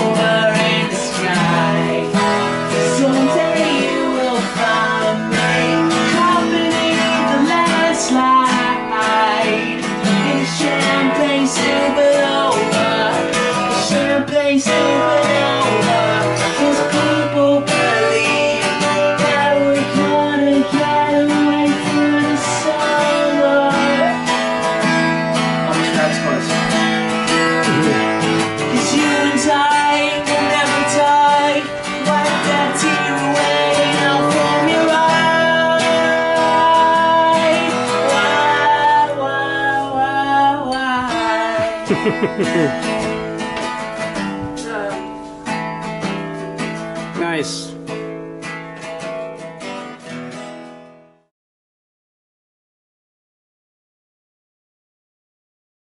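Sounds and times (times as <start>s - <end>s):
man singing: 0.0s - 24.6s, 27.6s - 43.0s, 44.6s - 45.1s
acoustic guitar strumming: 0.0s - 51.3s.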